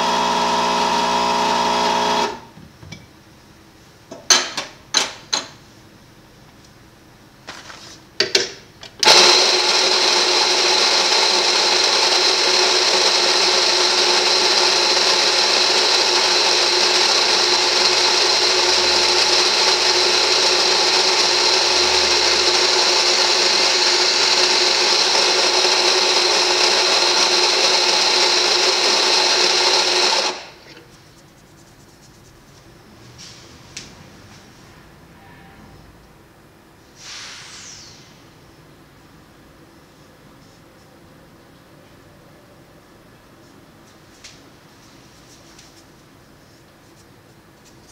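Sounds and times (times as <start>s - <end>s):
coffee grinder motor running: 0.0s - 2.5s, 9.0s - 30.6s.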